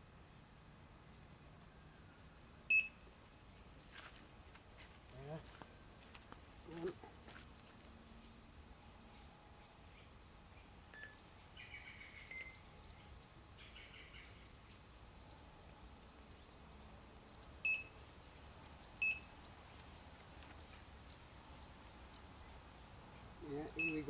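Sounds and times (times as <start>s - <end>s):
bite alarm beeps: 2.7s - 3.0s, 12.3s - 12.6s, 17.6s - 17.9s, 23.8s - 24.0s
bird chirps: 8.1s - 24.0s.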